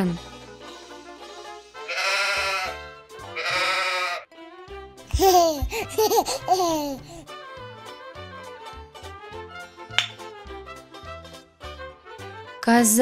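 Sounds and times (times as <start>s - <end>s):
light children's music: 0.0s - 13.0s
sheep bleating: 1.8s - 4.3s.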